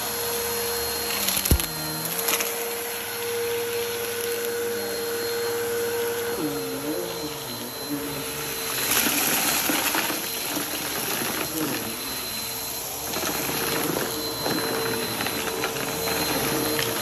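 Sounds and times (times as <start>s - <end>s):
vacuum cleaner motor whine: 0.0s - 17.0s
debris rattling into vacuum: 8.5s - 12.4s.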